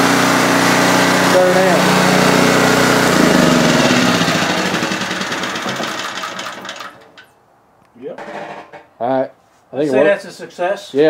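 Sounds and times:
generator engine winding down: 0.0 - 7.2.

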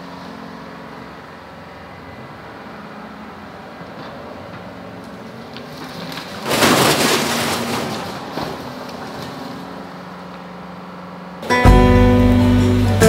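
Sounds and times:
diesel engine running: 0.0 - 13.0
loud crunching crash: 5.5 - 10.1.

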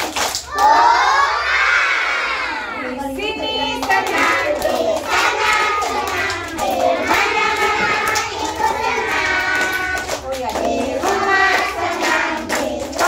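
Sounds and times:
hands clapping: 0.0 - 0.8, 3.6 - 13.0
children singing together: 0.5 - 13.0.

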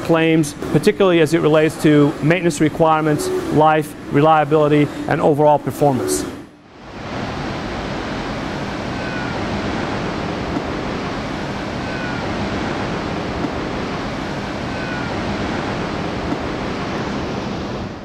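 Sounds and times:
sea water rushing: 6.7 - 18.0.

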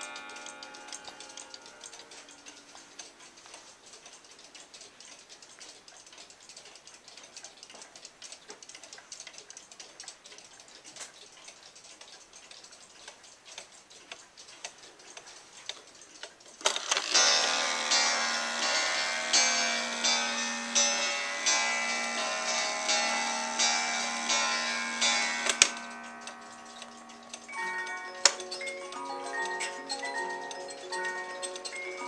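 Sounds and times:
faint chime ringing: 0.0 - 3.0, 17.1 - 32.0
clocks ticking out of step: 0.0 - 32.0.

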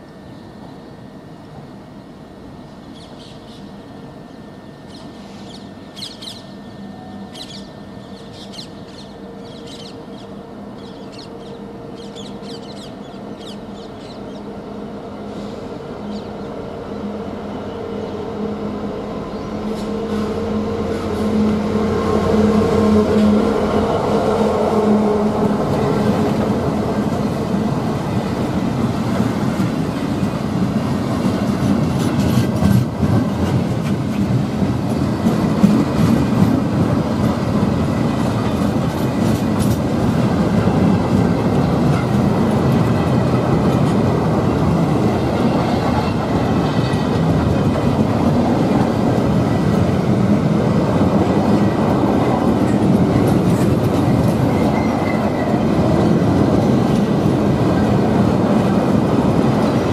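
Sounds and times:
diesel locomotive engine: 0.0 - 59.9
rumble of freight wagons: 17.5 - 59.9.

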